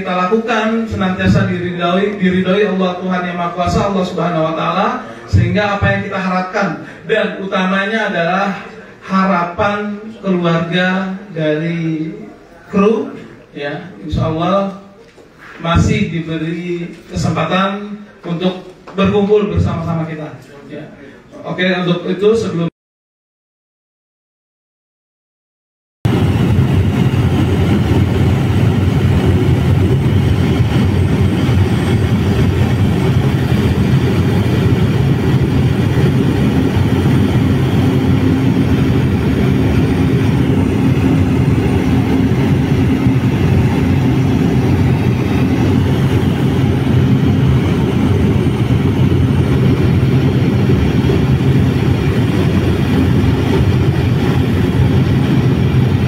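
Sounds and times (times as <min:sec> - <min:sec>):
aircraft engine drone: 0:26.1 - 0:56.0
low hum: 0:26.1 - 0:56.0.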